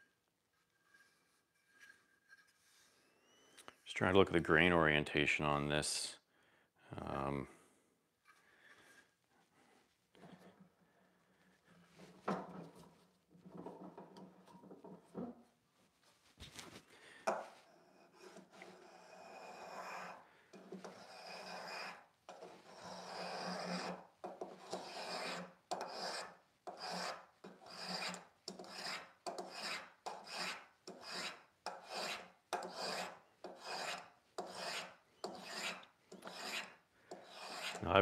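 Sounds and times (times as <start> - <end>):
spokeshave scraping wood: 20.8 - 38.0.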